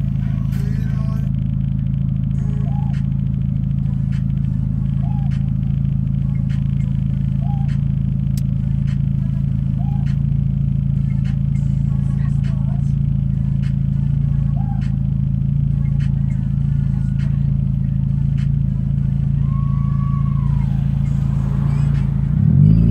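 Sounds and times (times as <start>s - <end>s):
car engine idling: 0.0s - 22.9s
rising and falling tone: 19.4s - 22.9s.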